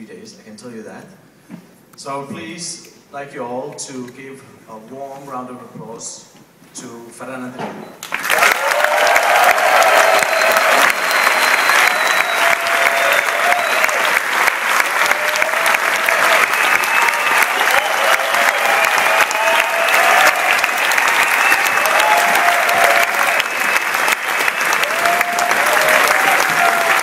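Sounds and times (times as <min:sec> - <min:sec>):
audience applause: 0:08.0 - 0:27.0.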